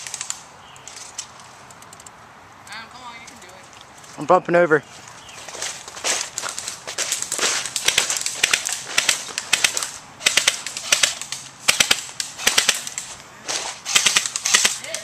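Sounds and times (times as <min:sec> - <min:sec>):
airsoft rifle firing clicks: 0:07.7 - 0:13.1, 0:13.9 - 0:15.0.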